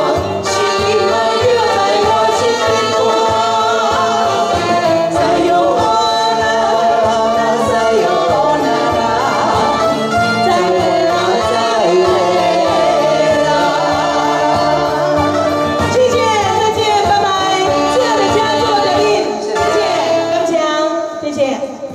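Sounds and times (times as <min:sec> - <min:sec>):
saxophone: 0:00.0 - 0:06.3, 0:07.4 - 0:21.2
keyboard: 0:00.0 - 0:21.9
woman singing: 0:00.0 - 0:21.9
man singing: 0:01.7 - 0:15.4.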